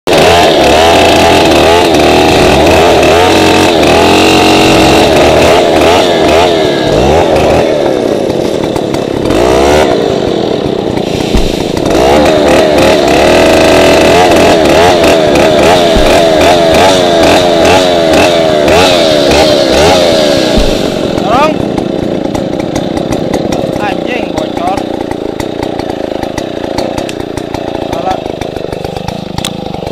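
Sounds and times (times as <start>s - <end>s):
chainsaw cutting a tree: 0.1s - 29.9s.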